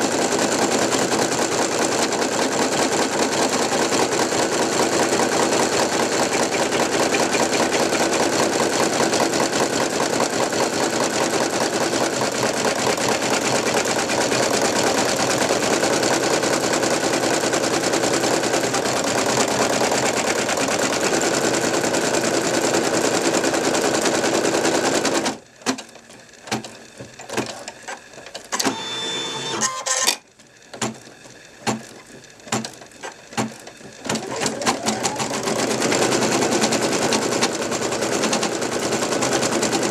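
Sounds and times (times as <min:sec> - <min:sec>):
embroidery machine stitching: 0:00.0 - 0:39.9
mechanism clicks and whir: 0:25.6 - 0:35.3.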